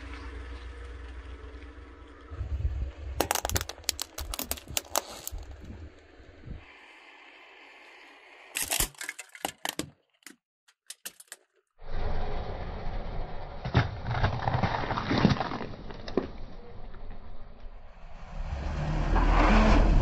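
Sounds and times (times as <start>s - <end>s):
car and tyre noise: 0.0s - 10.4s, 11.0s - 20.0s
plastic cracking under tyre: 3.2s - 5.5s, 13.7s - 17.1s.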